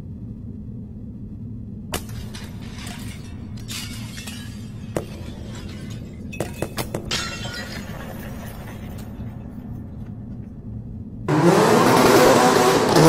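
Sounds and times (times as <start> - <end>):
crashing impacts with shattering ring: 1.9 - 9.8.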